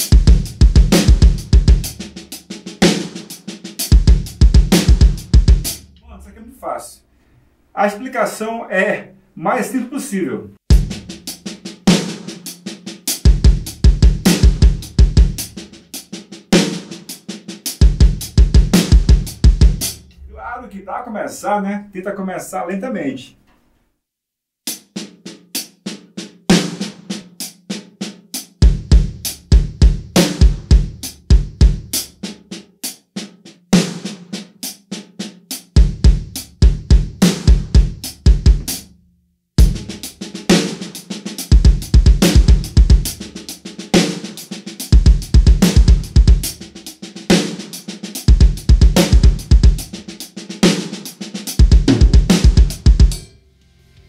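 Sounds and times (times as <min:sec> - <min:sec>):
drum kit playing: 0:00.0 - 0:06.8, 0:10.7 - 0:21.6, 0:28.4 - 0:32.4, 0:35.6 - 0:38.9, 0:39.6 - 0:53.3.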